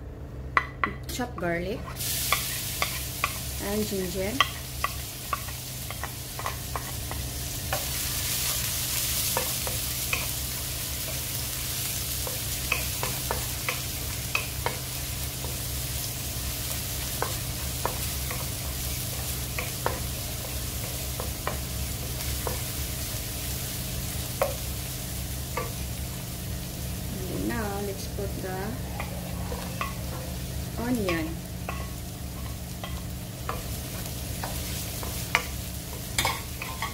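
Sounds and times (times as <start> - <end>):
garlic sizzling in hot oil: 1.8 - 36.9
spatula scraping a wok: 28.2 - 36.9.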